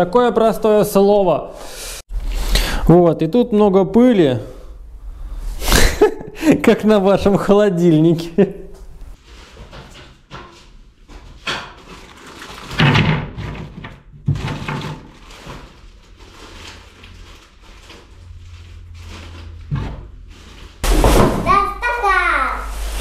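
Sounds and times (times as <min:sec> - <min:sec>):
knocks and scrapes on workbench: 0:09.4 - 0:12.0, 0:19.6 - 0:21.5.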